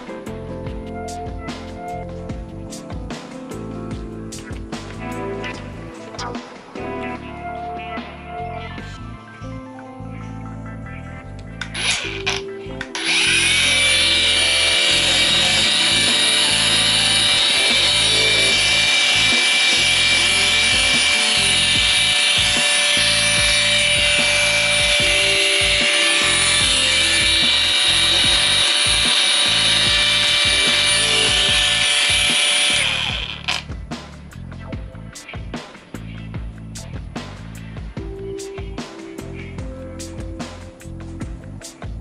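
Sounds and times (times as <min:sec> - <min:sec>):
angle grinder high whine: 0:11.6 - 0:33.8.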